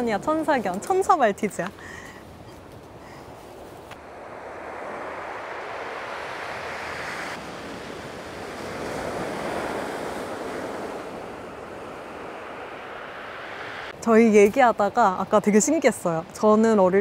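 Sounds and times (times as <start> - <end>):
ocean surf washing on beach: 3.4 - 17.0.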